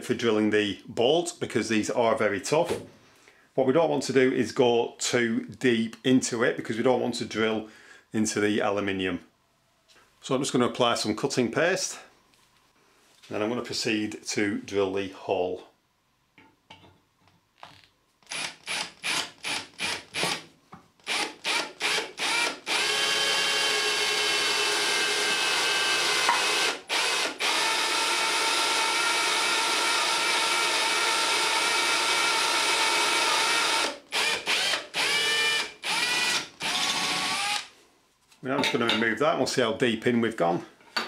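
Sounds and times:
cordless drill whining: 18.2s - 20.4s, 21.0s - 37.7s.

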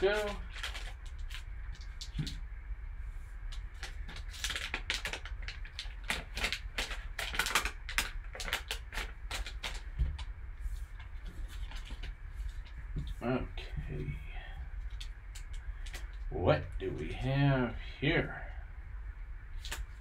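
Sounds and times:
foil wrapper crinkling: 0.0s - 2.4s, 3.5s - 10.3s, 10.9s - 12.8s.

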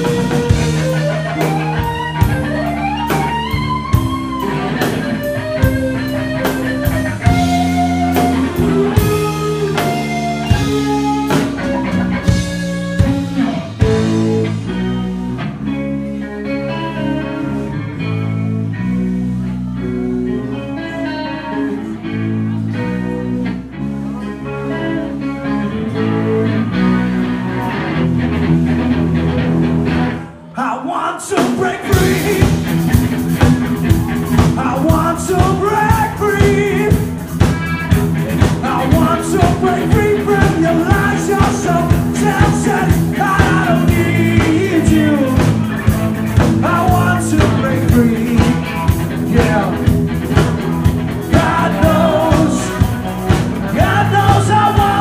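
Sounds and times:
live rock band playing: 0.0s - 30.6s, 31.2s - 55.0s
person singing: 30.3s - 32.8s, 34.4s - 37.1s, 38.4s - 50.0s, 51.1s - 55.0s.

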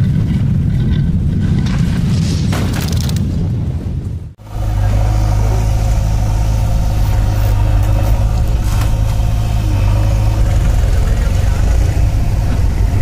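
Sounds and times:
tractor diesel engine idling: 4.4s - 13.0s.

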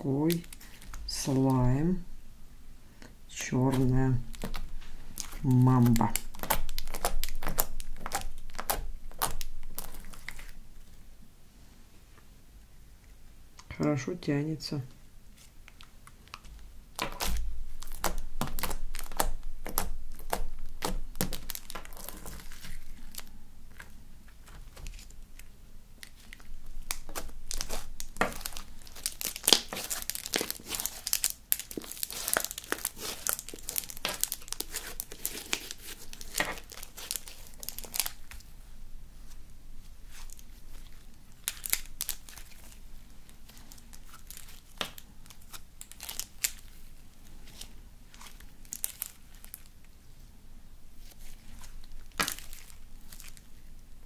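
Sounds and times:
slime squeezed by hand: 26.8s - 38.2s.

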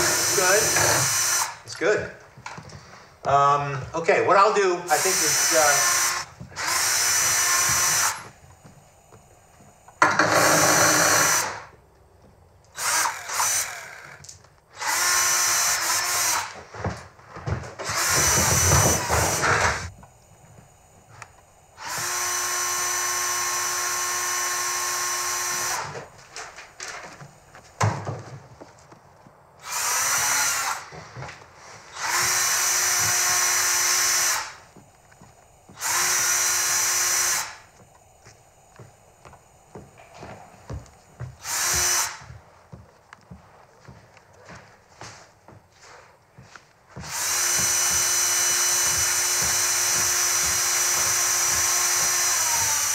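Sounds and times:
cordless drill running: 0.0s - 1.7s, 4.9s - 11.8s, 12.7s - 16.6s, 17.8s - 26.1s, 29.6s - 31.0s, 31.9s - 42.4s, 47.0s - 52.9s
drill clicks: 0.0s - 1.7s, 4.9s - 9.2s, 9.8s - 11.7s, 12.7s - 16.6s, 17.8s - 27.4s, 29.6s - 31.0s, 31.9s - 40.0s, 40.7s - 42.4s, 47.0s - 52.9s.

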